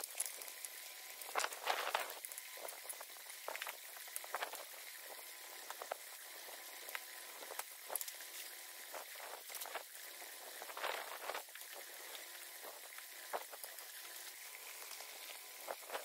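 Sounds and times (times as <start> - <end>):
slush crackling and splashing: 0.0 - 5.8
water trickling through gutter: 0.0 - 16.0.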